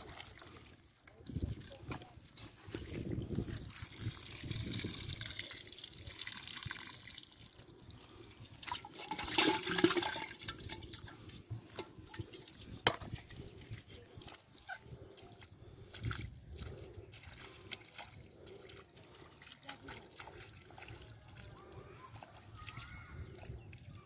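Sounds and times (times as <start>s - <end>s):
water and fish sloshing in basin: 0.0s - 24.0s
water poured into metal pot: 2.4s - 13.9s.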